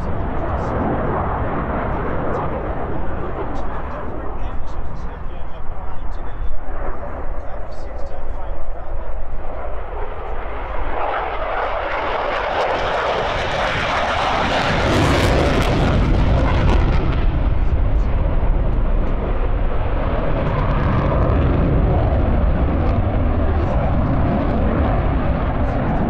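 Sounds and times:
fighter jet flying past: 0:00.0 - 0:26.0.

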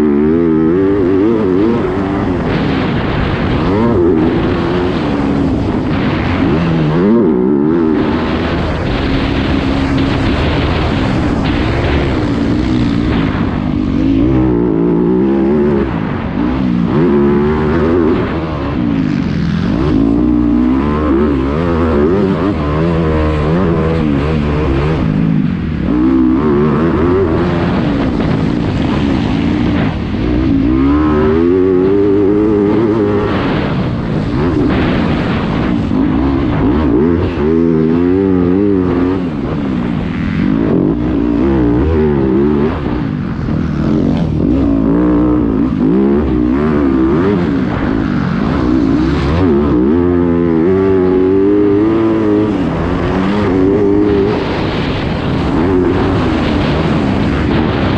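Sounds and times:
motorcycle engine revving: 0:00.0 - 0:57.9.

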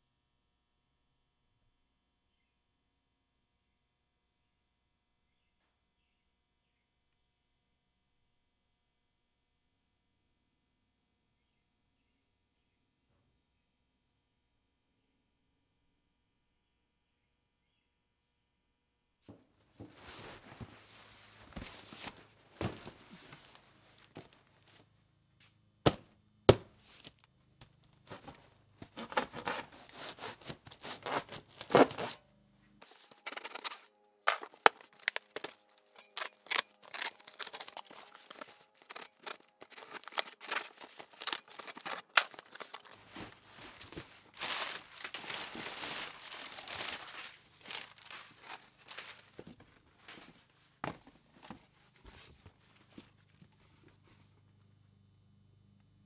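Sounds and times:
cardboard flaps rustling: 0:19.8 - 0:24.8, 0:28.1 - 0:32.2, 0:32.8 - 0:54.2
packing tape tearing: 0:28.1 - 0:32.2, 0:32.8 - 0:49.4.

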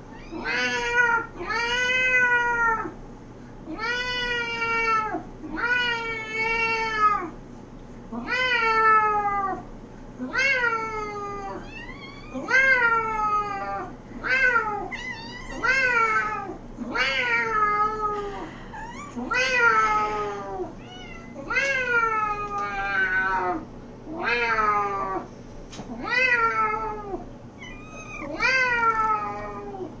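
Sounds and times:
second meow overlapping: 0:26.0 - 0:29.8.

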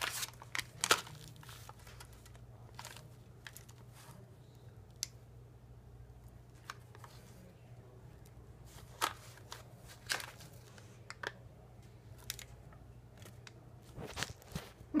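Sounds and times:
plastic packets crinkling: 0:00.0 - 0:04.0, 0:08.7 - 0:11.4
faint low hum: 0:00.0 - 0:15.0.

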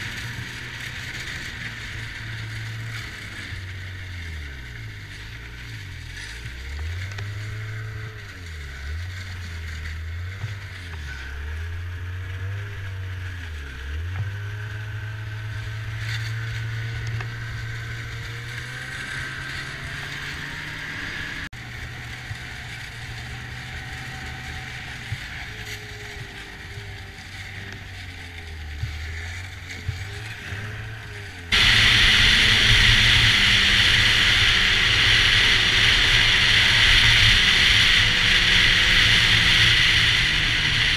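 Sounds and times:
snowmobile engine running: 0:00.0 - 0:40.9
strong rushing hiss: 0:31.5 - 0:40.9.

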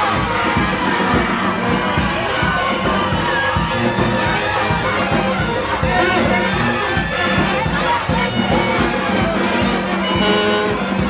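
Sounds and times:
bass drum beat: 0:00.0 - 0:11.0
brass band playing: 0:00.0 - 0:11.0
crowd noise: 0:00.0 - 0:11.0.

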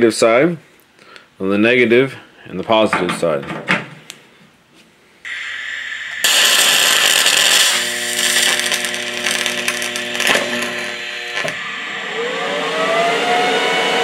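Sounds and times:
welding arc crackling: 0:05.3 - 0:12.4
buzzing hum: 0:05.3 - 0:14.0
rising whine: 0:05.3 - 0:14.0.

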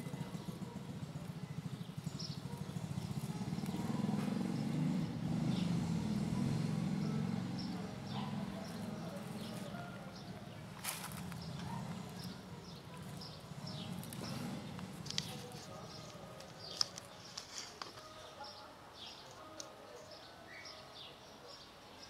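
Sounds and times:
dry grass rustling: 0:10.6 - 0:12.2, 0:13.0 - 0:18.4.

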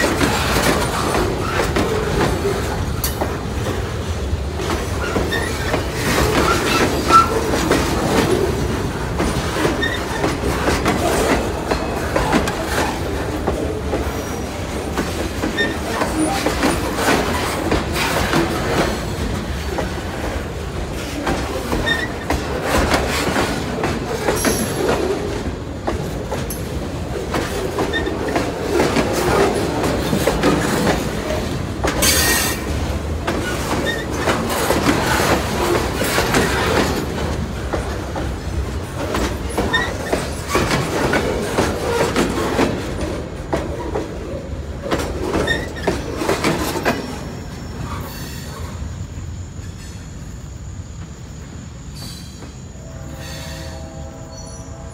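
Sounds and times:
freight train wheels clattering: 0:00.0 - 0:48.8
wheel squeals: 0:05.0 - 0:07.8, 0:09.7 - 0:13.2, 0:15.4 - 0:18.8, 0:33.4 - 0:37.0, 0:39.5 - 0:40.9, 0:45.3 - 0:48.6.

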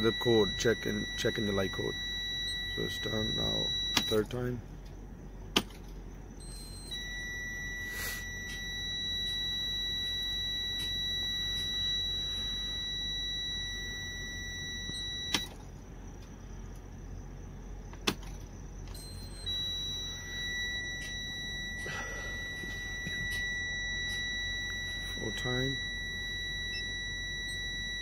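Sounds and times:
dashboard warning buzzer: 0:00.0 - 0:04.6, 0:06.4 - 0:15.6, 0:18.9 - 0:28.0
ignition key switch click: 0:03.9 - 0:04.4.

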